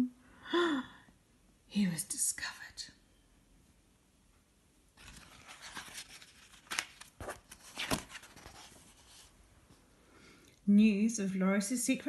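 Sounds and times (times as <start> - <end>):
page crackling: 5.0 - 9.3
paper page rustling: 5.0 - 9.3.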